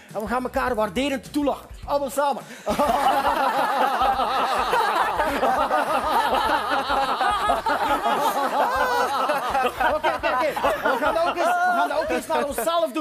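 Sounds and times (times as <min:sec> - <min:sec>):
group laughing: 0:02.7 - 0:12.8.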